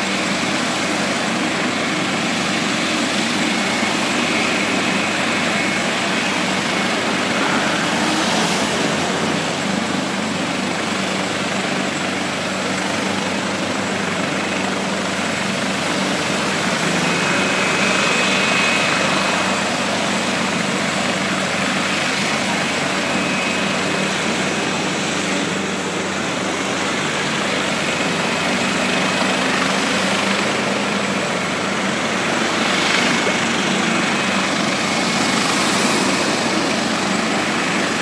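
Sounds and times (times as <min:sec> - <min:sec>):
helicopter rotor and engine: 0:00.0 - 0:38.0.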